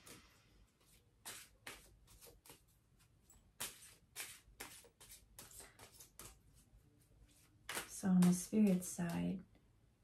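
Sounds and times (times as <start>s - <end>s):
cards rustling and slapping: 0.8s - 2.8s, 3.5s - 6.6s, 7.3s - 9.1s.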